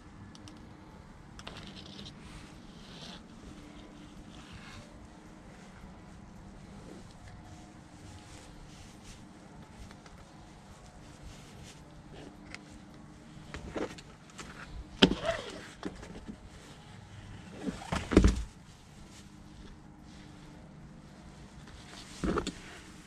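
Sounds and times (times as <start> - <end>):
rustling of sleeves and line: 1.2 - 23.0
handling knocks and bumps: 17.5 - 18.6.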